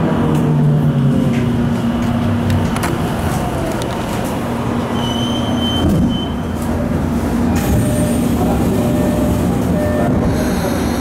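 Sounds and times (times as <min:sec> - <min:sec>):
train wheels rumbling on rails: 0:00.0 - 0:11.0
high brake squeal: 0:04.9 - 0:06.5
train motor hum: 0:06.4 - 0:11.0.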